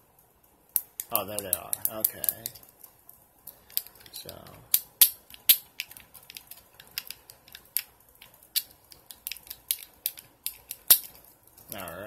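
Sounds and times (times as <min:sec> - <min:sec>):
fidget cube clicking: 0:03.5 - 0:11.8.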